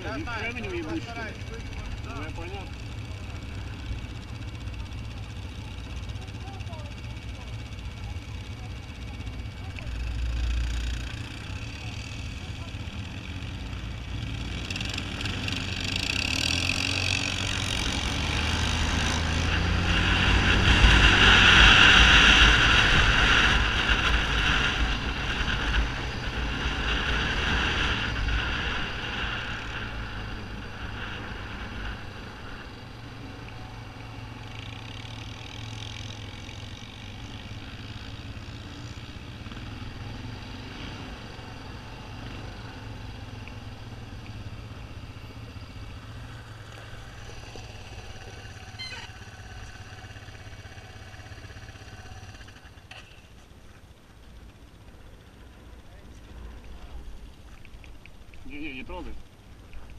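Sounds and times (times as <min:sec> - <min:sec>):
quad bike engine running: 0:00.0 - 0:59.9
wind rushing over microphone: 0:18.6 - 0:32.7.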